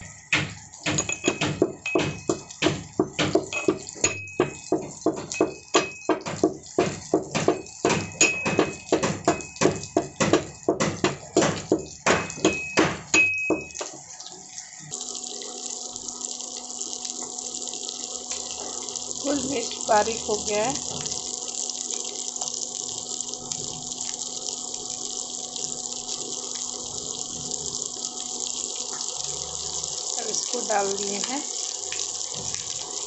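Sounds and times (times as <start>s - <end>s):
food sizzling in oil: 0.0s - 33.0s
pestle pounding in metal mortar: 0.3s - 13.9s.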